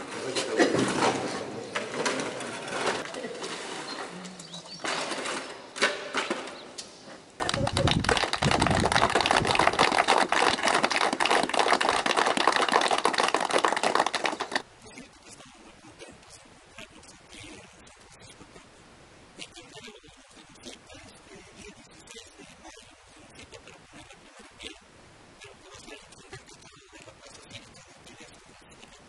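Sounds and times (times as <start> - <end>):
shovels scraping wet concrete: 0.0 - 6.4
crowd applauding: 7.4 - 14.6.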